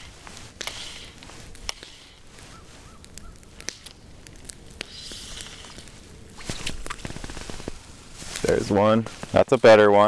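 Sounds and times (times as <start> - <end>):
fly line hissing through guides: 0.0 - 3.0, 4.8 - 8.4
sharp clicks: 0.6 - 2.2, 3.0 - 7.8.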